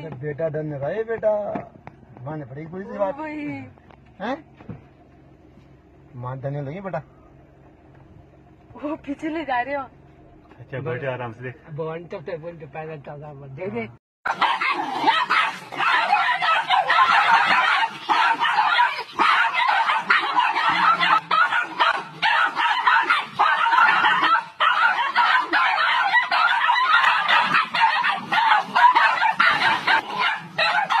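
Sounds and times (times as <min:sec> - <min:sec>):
puppies yapping and growling: 0:14.3 - 0:31.0.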